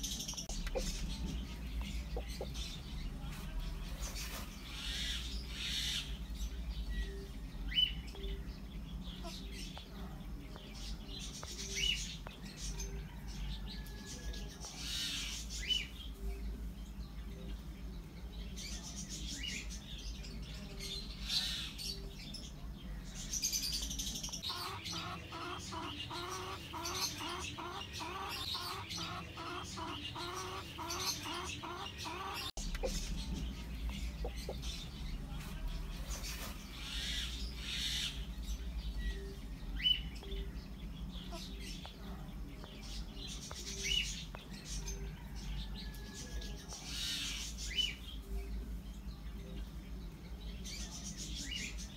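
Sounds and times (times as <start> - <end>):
hen clucking: 0.0 - 2.9, 24.4 - 34.9
birds chirping: 0.0 - 51.9.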